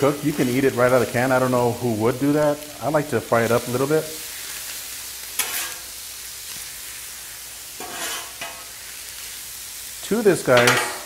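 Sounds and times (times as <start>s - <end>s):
meat sizzling on a griddle: 0.0s - 11.0s
metal spatula scraping griddle: 5.3s - 5.9s, 7.8s - 8.8s.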